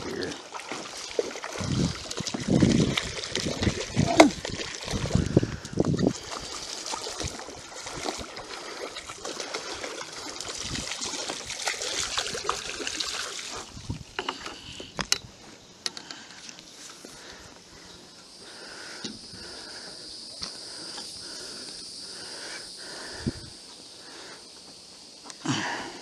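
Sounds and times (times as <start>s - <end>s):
water splashing and trickling: 0.0s - 14.9s.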